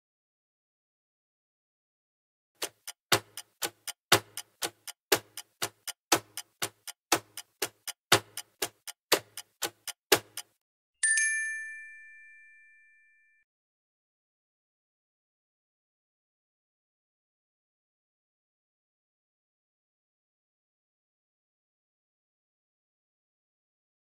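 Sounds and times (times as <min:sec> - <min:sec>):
clock ticking: 0:02.6 - 0:10.6
bell ding: 0:11.0 - 0:13.4.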